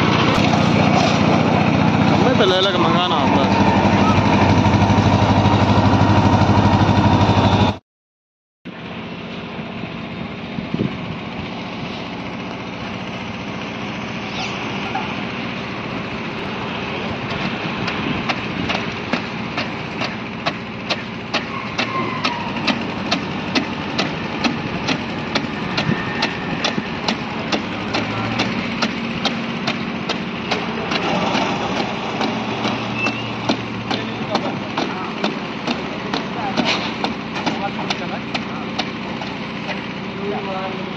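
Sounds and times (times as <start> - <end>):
concrete mixer engine running: 0.0 - 7.8, 8.7 - 40.9
sharp regular clicks: 26.6 - 39.4.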